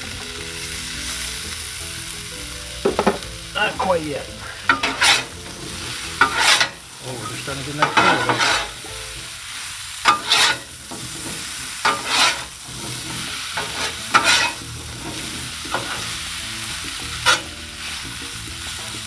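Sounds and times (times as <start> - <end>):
fries sizzling in oil: 0.0 - 19.0
metal spatulas scraping griddle: 4.5 - 8.9, 10.0 - 17.6.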